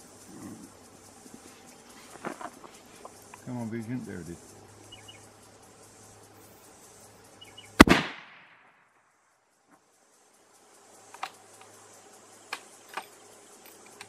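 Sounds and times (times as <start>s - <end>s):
loud rifle shot: 7.8s - 8.8s.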